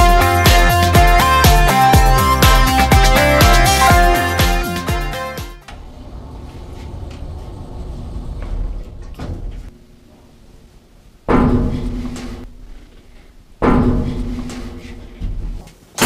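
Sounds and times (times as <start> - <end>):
low rumble: 5.6 - 10.0.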